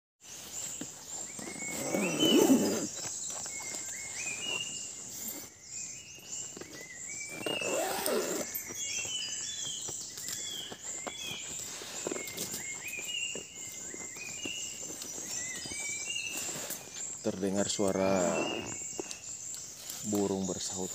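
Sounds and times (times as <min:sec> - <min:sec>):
birds calling: 0:00.2 - 0:20.9
low-pitched bird calls: 0:01.2 - 0:05.5, 0:10.4 - 0:19.3.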